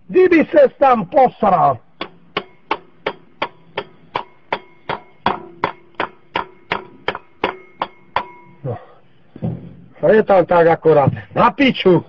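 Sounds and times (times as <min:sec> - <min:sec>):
hammer tapping on metal: 0:02.0 - 0:08.6.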